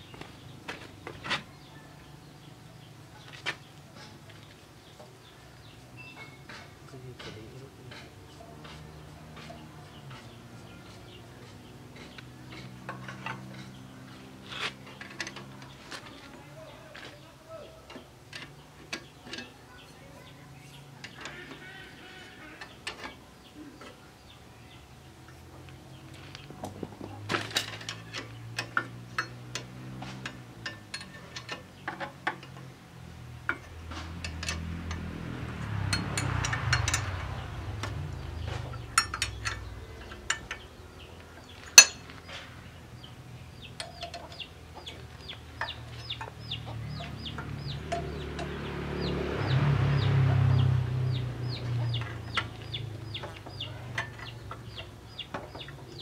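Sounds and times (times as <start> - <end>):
metal clicks from engine work: 6.2 - 16.2, 17.8 - 19.6, 21.0 - 21.7, 22.6 - 23.2, 25.3 - 32.8, 33.4 - 49.1, 51.1 - 56.0.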